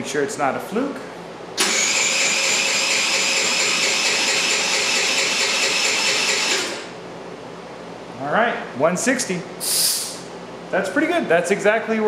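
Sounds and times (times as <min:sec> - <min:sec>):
scooter electric starter whine: 0:01.6 - 0:06.9.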